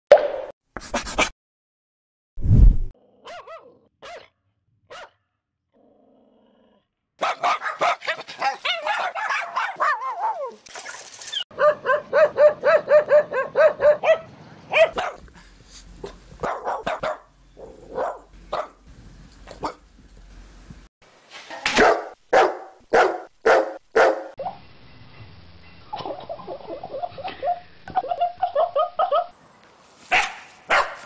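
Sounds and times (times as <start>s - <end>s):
dogs barking: 3.2s - 4.3s, 4.9s - 5.2s, 7.2s - 10.4s, 11.5s - 15.2s, 16.0s - 18.8s, 19.5s - 19.8s, 21.7s - 24.4s, 26.0s - 29.3s, 30.1s - 31.0s
small dogs yapping: 7.2s - 15.2s.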